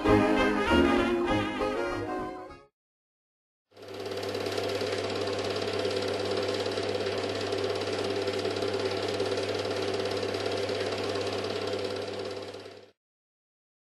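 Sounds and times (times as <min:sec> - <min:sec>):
film projector clattering: 0:03.8 - 0:13.0.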